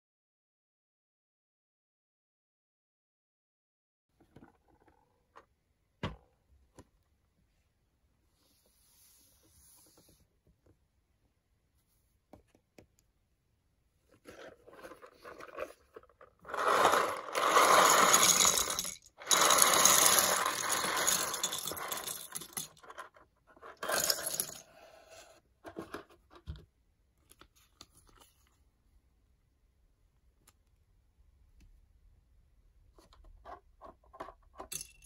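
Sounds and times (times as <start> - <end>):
plastic pieces clattering on table: 14.3 - 24.8.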